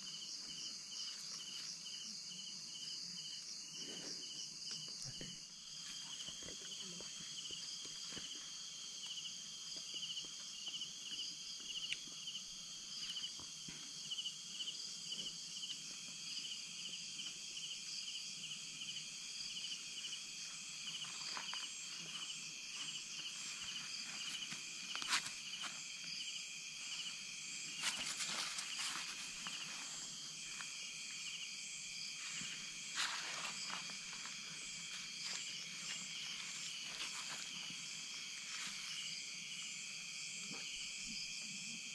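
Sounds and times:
night insects trilling: 0:00.0 - 0:41.9
rustles or crackles: 0:27.7 - 0:30.7.

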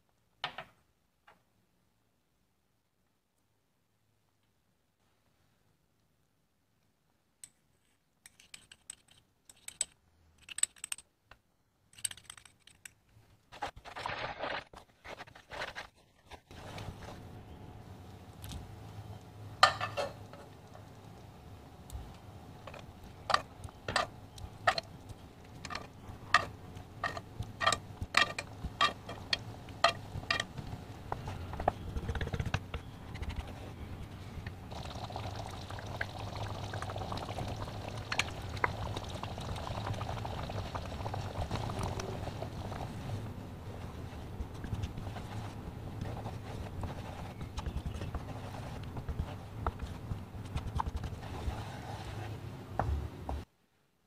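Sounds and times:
wooden spoon stirring: 0:22.7 - 0:34.1, 0:39.6 - 0:52.3
sauce bubbling and sizzling: 0:34.7 - 0:43.3.

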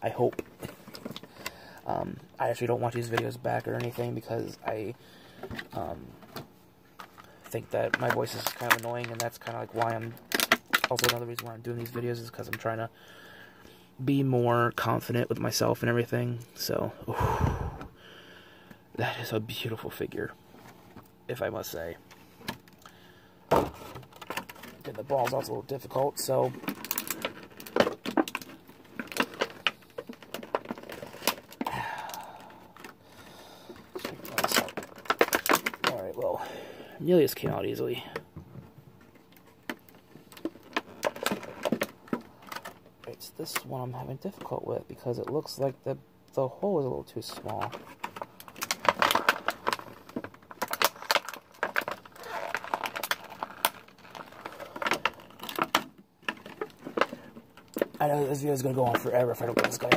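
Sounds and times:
packaging rustling: 0:23.6 - 0:32.2, 0:32.8 - 0:36.2, 0:47.3 - 0:59.9
hard plastic clicking and rattling: 0:33.7 - 0:36.0, 0:47.3 - 0:58.0.

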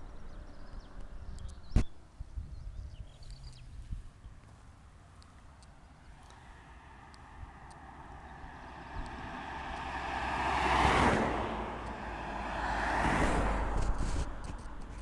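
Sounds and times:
car exhaust driving past: 0:06.0 - 0:14.5.

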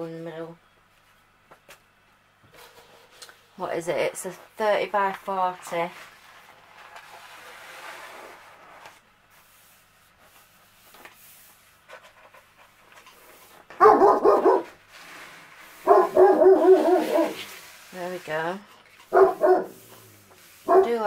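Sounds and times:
canvas and paper rustling: 0:04.5 - 0:21.0
dog barking: 0:13.8 - 0:14.8, 0:15.8 - 0:17.4, 0:19.1 - 0:19.8, 0:20.6 - 0:21.0.

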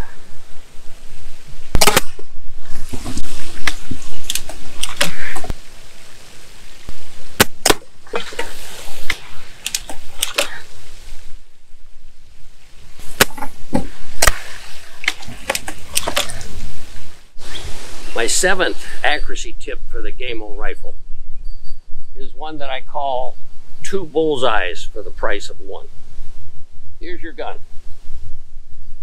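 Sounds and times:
air rifle shots: 0:01.7 - 0:02.3
rifle barrel snapping shut: 0:01.8 - 0:02.2.

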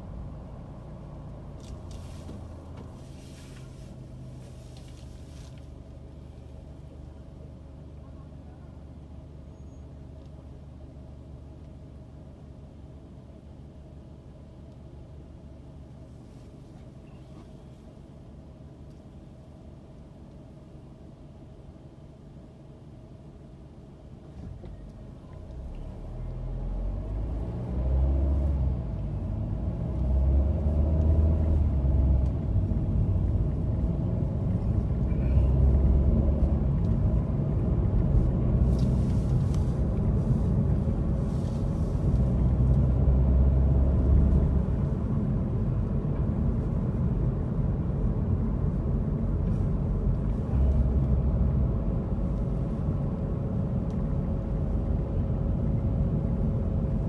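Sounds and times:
car engine accelerating: 0:25.4 - 0:57.0.

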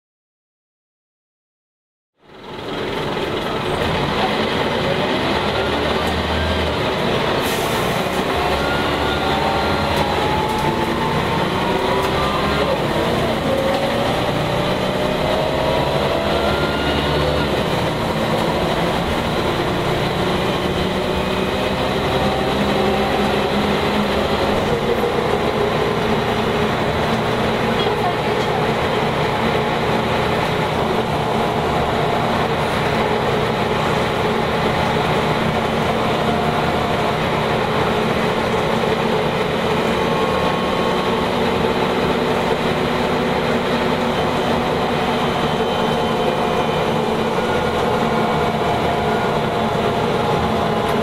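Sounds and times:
bus diesel engine running: 0:02.2 - 0:51.0
whine rising in pitch: 0:08.2 - 0:26.6.

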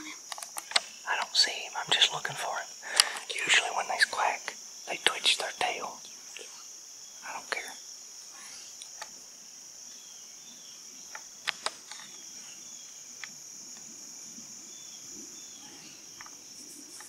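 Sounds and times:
insects droning: 0:00.0 - 0:17.0
sharp clicks: 0:02.9 - 0:03.3.

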